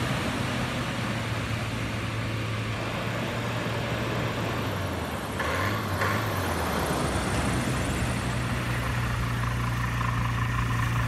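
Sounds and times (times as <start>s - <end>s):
light plane engine droning: 6.7s - 11.0s.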